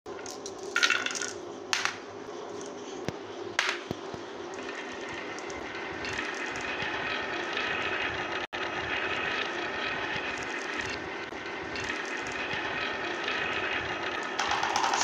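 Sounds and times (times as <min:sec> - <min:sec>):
marbles clattering: 0:00.1 - 0:02.0, 0:14.2 - 0:15.0
marbles rolling on wood: 0:00.2 - 0:02.0, 0:04.5 - 0:07.2, 0:11.7 - 0:15.0.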